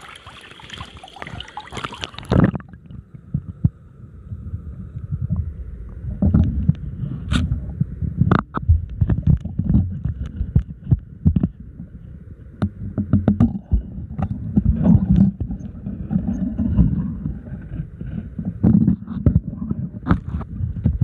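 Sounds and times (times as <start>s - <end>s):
river water splashing: 0.0s - 2.6s
faint steady high hum: 0.0s - 21.0s
underwater thuds and knocks: 1.2s - 3.8s, 6.1s - 6.8s, 7.7s - 12.0s, 12.6s - 21.0s.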